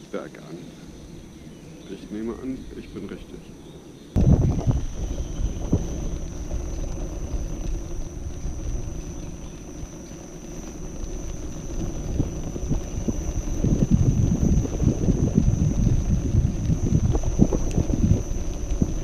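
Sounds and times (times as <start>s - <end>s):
thin high whine: 4.2s - 19.0s
tyre rumbling over cobblestones: 4.2s - 19.0s.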